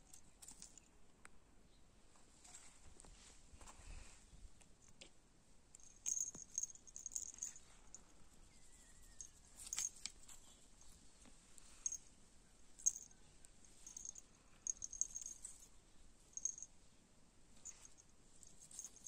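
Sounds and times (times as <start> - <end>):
collar jingles: 5.8 - 8.1, 12.8 - 15.7, 17.6 - 19.0.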